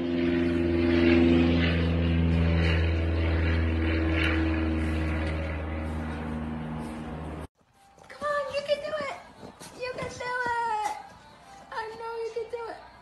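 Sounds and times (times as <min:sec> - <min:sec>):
low motor drone: 0:00.0 - 0:07.5.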